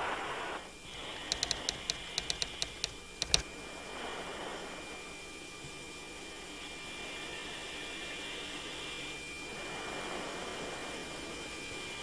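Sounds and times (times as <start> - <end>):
heavier click: 1.3 - 3.4
typewriter keystroke ticks: 1.3 - 3.4.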